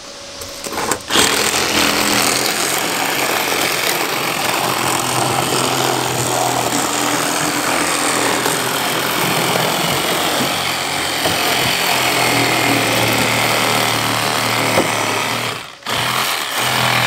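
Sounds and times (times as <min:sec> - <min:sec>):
power tool running: 0:00.0 - 0:17.0.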